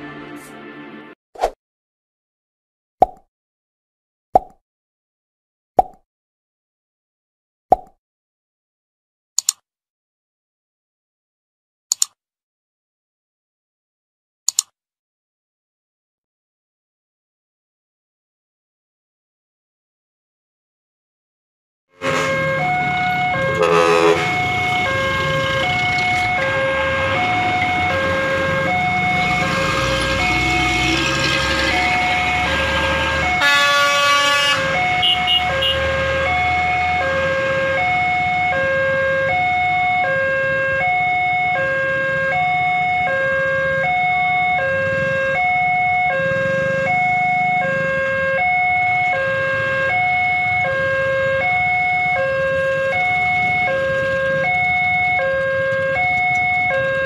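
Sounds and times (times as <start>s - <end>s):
horn blast: 22.0s - 27.9s, 31.8s - 37.5s
level crossing two-tone alarm: 22.0s - 57.0s
road traffic: 22.0s - 57.0s.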